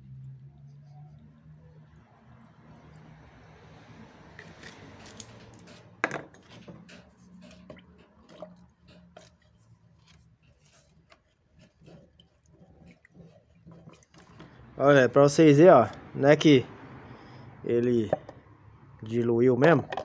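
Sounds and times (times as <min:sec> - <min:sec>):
rod stirring paint in metal tin: 0:04.3 - 0:16.0.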